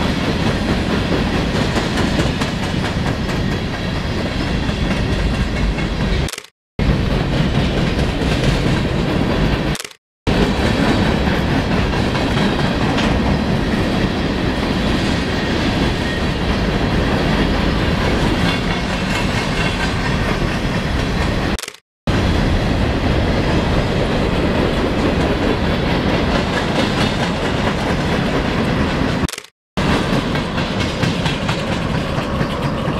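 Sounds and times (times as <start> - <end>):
freight train wheels clattering: 24.6 - 32.9.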